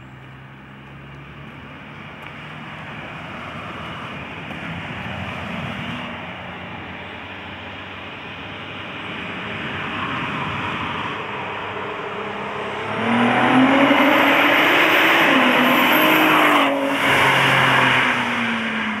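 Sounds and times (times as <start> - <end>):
supercharger whine: 3.9 - 19.0
car accelerating hard passing: 9.2 - 19.0.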